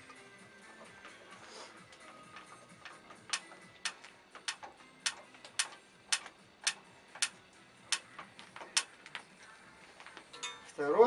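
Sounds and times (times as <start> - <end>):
screwdriver clicking: 2.8 - 8.1, 8.7 - 8.9.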